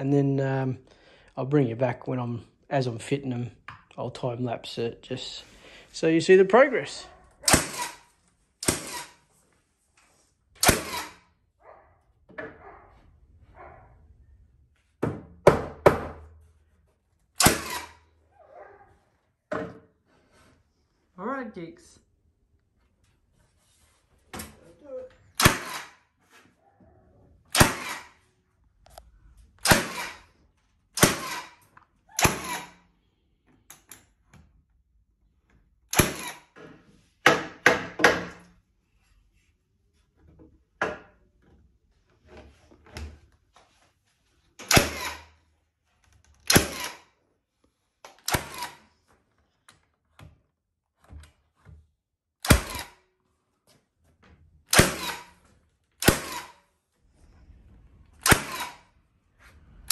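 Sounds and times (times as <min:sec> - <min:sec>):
nail gun firing: 0:07.4 - 0:09.2, 0:10.6 - 0:11.3, 0:17.4 - 0:18.0, 0:25.4 - 0:26.0, 0:27.5 - 0:28.2, 0:29.6 - 0:30.3, 0:30.9 - 0:32.8, 0:35.9 - 0:36.6, 0:44.6 - 0:45.4, 0:46.4 - 0:47.1, 0:48.1 - 0:48.9, 0:52.4 - 0:53.0, 0:54.7 - 0:56.6, 0:58.2 - 0:58.9.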